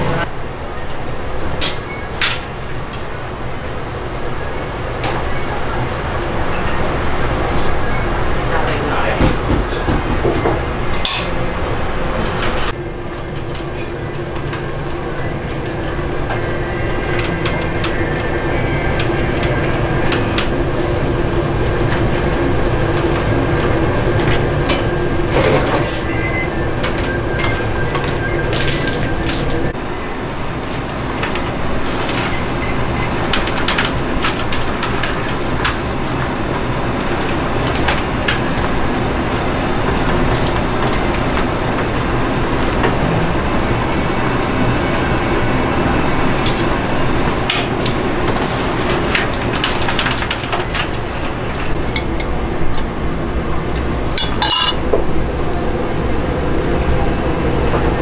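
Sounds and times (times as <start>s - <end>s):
gas burners: 0.0s - 58.0s
boiling cooker: 12.3s - 58.0s
metal utensils clinking: 54.2s - 54.8s.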